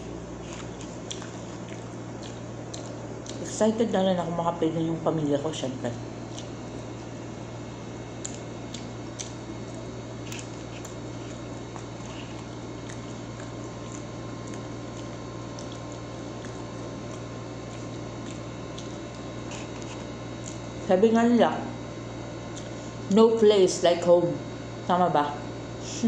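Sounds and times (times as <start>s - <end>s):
wet eating sounds: 0.0s - 3.9s, 6.0s - 20.9s, 22.4s - 23.0s
air conditioner humming: 0.0s - 26.0s.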